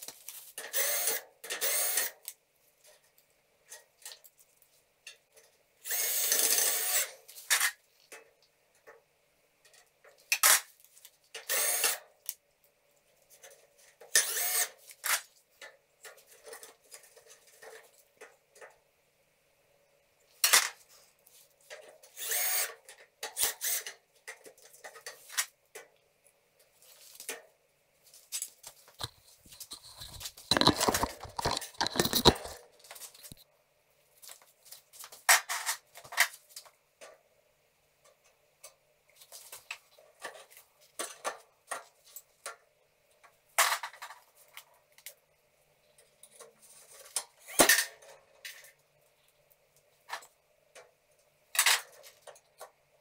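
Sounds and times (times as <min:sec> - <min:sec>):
metal clatter and scrape: 0:29.0 - 0:33.4.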